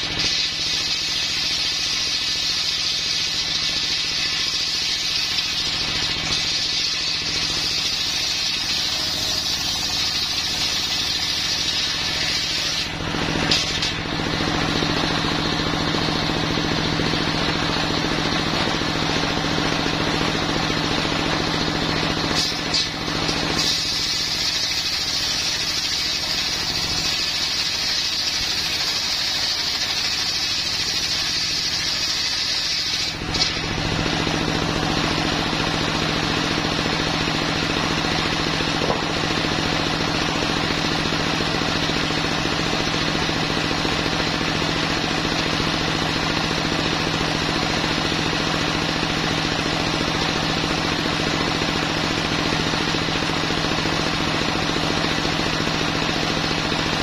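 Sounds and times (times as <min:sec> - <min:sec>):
circular saw ripping timber: 0:00.0 - 0:14.1, 0:22.2 - 0:33.8
saw engine running: 0:00.0 - 0:57.0.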